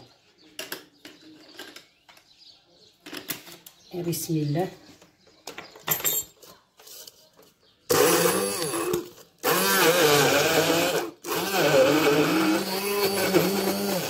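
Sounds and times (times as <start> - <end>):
immersion blender grinding: 7.9 - 14.0.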